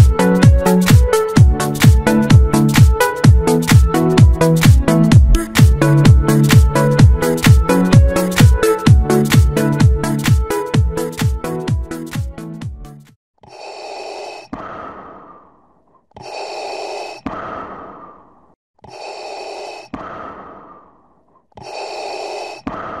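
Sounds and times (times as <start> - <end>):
electronic dance music: 0.0 - 12.9.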